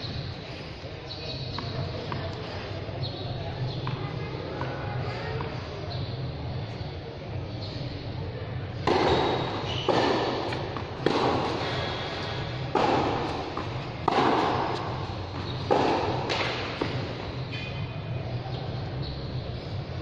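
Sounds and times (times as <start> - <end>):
tennis ball pops echoing: 8.8 - 17.2.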